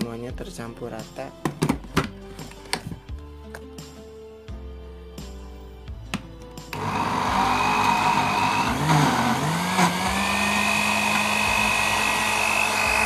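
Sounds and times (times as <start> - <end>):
blender motor whining: 6.7 - 13.0.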